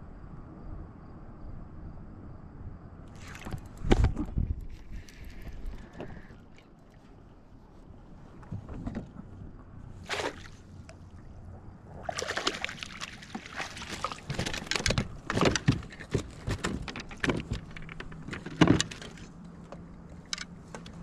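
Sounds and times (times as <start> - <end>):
water splashing and dripping: 12.0 - 15.6
net knocking and rattling: 13.9 - 19.3.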